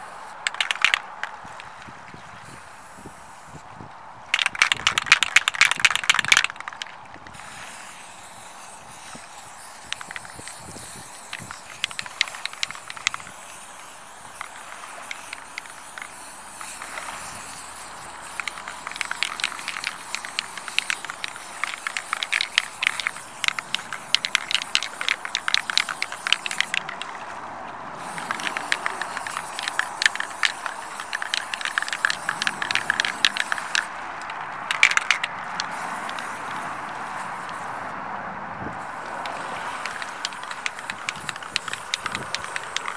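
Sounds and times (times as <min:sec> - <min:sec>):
spray paint can hissing: 0:00.0 - 0:03.6, 0:04.3 - 0:27.4, 0:28.0 - 0:38.0, 0:38.8 - 0:42.9.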